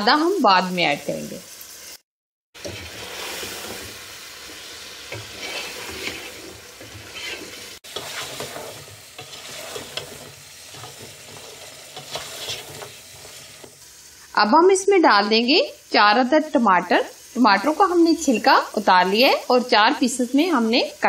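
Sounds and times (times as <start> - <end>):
meat sizzling in oil: 0.0 - 2.0, 2.6 - 21.0
wooden spatula stirring in pot: 2.6 - 13.8.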